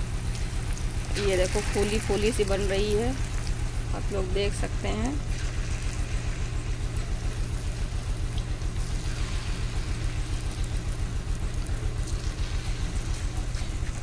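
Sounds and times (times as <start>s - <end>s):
hot oil sizzling: 0.0s - 14.0s
low throbbing hum: 0.0s - 14.0s.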